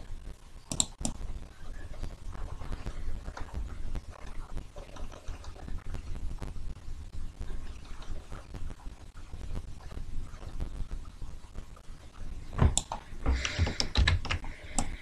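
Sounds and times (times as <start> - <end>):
computer mouse clicks: 0.7 - 1.2, 12.7 - 15.0.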